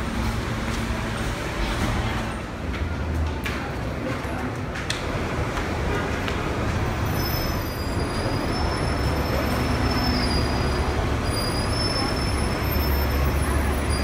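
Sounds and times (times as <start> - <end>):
city traffic rumble: 0.0 - 14.0
rail noise: 0.0 - 14.0
high metallic squeal: 7.1 - 14.0.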